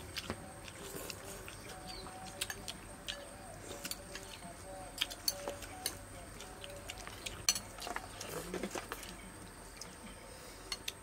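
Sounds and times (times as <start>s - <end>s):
spoons clinking against bowls: 5.0s - 6.1s, 7.0s - 9.2s.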